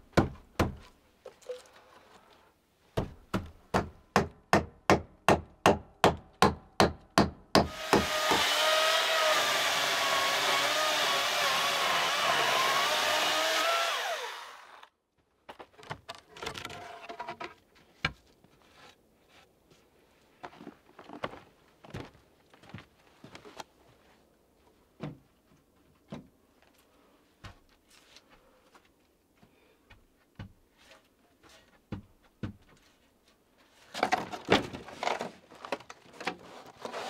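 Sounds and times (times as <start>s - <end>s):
hammer striking nails into wood: 3.0s - 8.5s
power tool motor whine: 7.7s - 14.9s.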